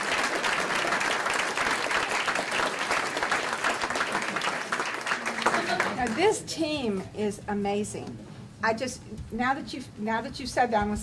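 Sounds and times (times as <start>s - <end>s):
crowd applauding: 0.0s - 6.4s.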